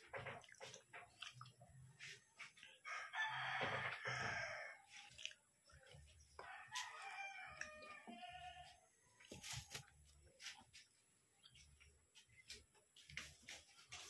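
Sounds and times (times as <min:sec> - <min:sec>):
rooster crowing: 0:02.9 - 0:04.8, 0:06.4 - 0:08.7.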